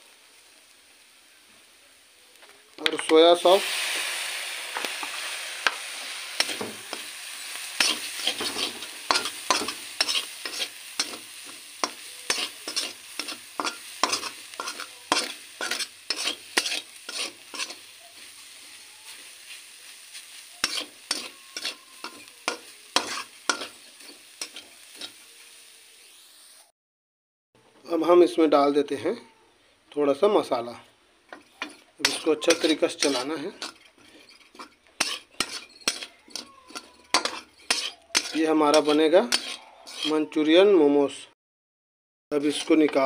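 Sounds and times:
frying sizzle: 0.0 - 26.7, 30.1 - 40.2, 42.3 - 43.0
spatula scraping metal wok: 2.9 - 26.2, 31.3 - 40.4, 42.4 - 43.0.

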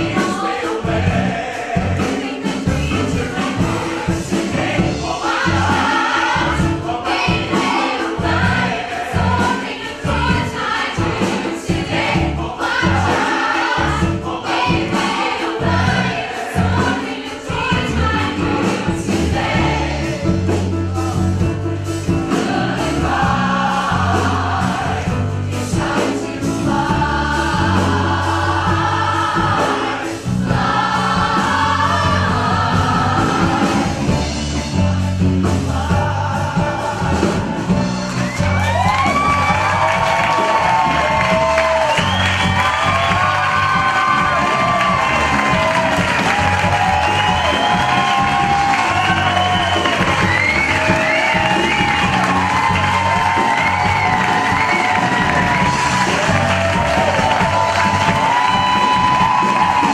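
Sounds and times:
bass: 0.0 - 59.9
choir singing: 0.0 - 59.9
drums: 0.0 - 59.9
piano: 0.0 - 59.9.

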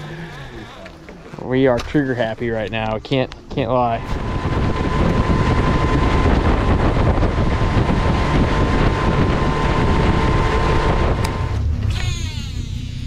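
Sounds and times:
steady high whine: 0.0 - 13.0
wind noise on microphone: 3.5 - 12.5
motorboat engine: 4.0 - 13.0.

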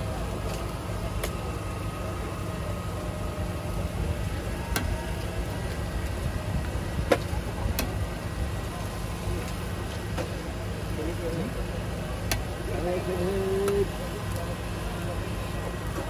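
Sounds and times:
low engine-like rumble: 0.0 - 16.0.

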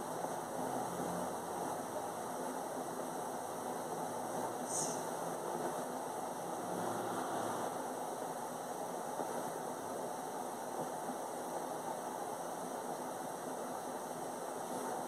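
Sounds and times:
steady background noise: 0.0 - 15.0
short high hiss: 4.6 - 5.2.

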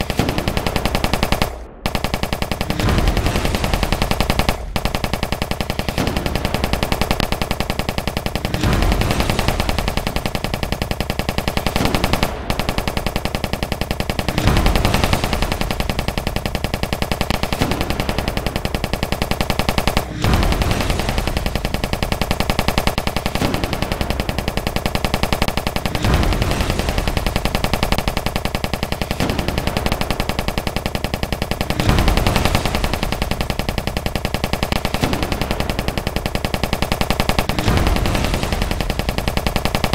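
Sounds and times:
deep gunfire bursts: 0.0 - 39.9
rapid machine-gun fire: 0.0 - 39.9.

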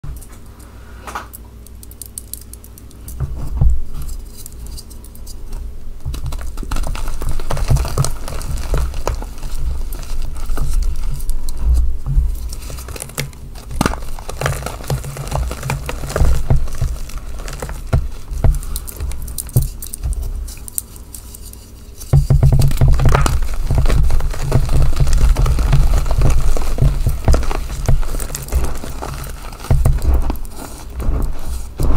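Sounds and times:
chalk crunching: 3.9 - 31.9
soft low thumps: 16.1 - 20.5, 22.1 - 31.9.

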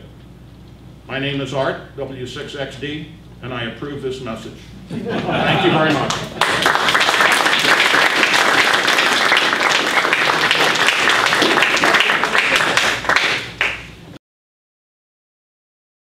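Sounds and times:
audience applauding: 5.6 - 14.0.

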